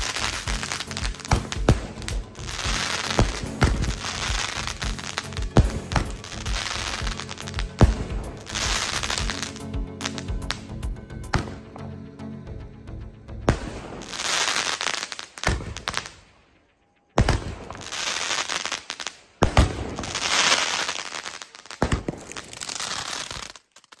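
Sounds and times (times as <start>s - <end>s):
fireworks bangs: 0.0s - 10.2s, 13.5s - 16.2s, 17.2s - 24.0s
crackling sparks: 0.0s - 10.6s, 13.5s - 24.0s.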